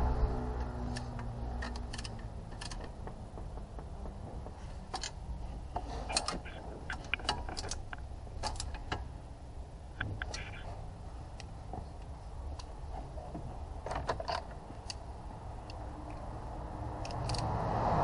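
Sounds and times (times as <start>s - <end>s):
wrenches clicking on metal: 0.9s - 3.2s, 4.5s - 9.1s.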